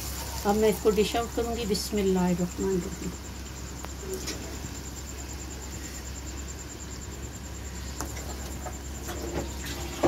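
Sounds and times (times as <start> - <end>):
wok sizzling: 0.0 - 10.0.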